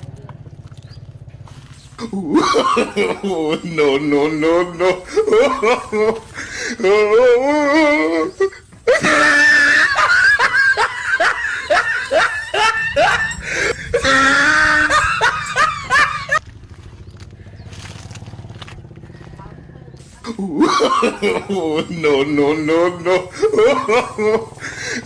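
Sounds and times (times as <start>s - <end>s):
person laughing loudly: 2.0s - 16.4s, 20.2s - 25.0s.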